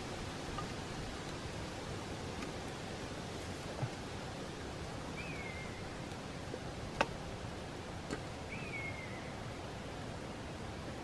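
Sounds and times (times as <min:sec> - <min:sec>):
steady background hiss: 0:00.0 - 0:11.0
bird whistled call: 0:05.2 - 0:05.9, 0:08.5 - 0:09.4.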